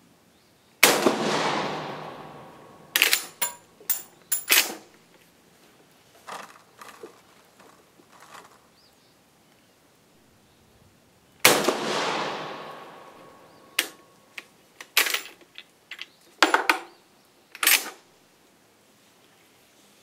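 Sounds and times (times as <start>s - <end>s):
rifle shot echoing: 0.8s - 3.4s, 11.4s - 14.0s
rifle bolt metallic clacks: 2.9s - 4.8s, 12.8s - 14.0s.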